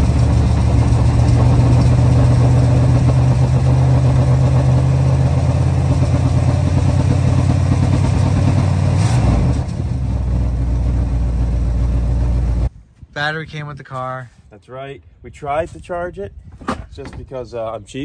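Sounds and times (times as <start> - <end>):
car engine idling: 0.0 - 12.7.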